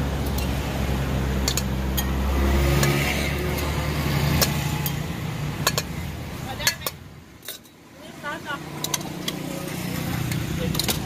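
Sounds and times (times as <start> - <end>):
vehicle engine passing: 0.0 - 6.5.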